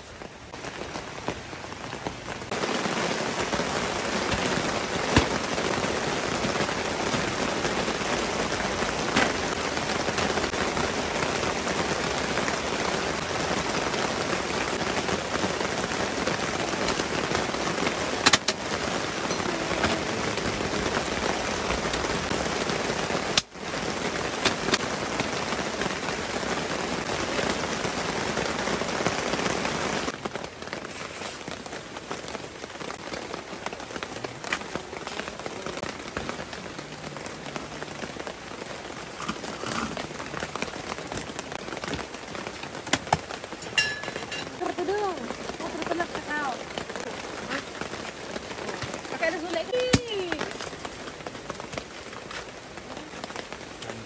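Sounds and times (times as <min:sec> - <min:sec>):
heavy rain falling: 0:00.0 - 0:54.0
raindrop taps: 0:00.5 - 0:10.8, 0:17.9 - 0:23.6, 0:24.2 - 0:25.7, 0:32.8 - 0:52.5.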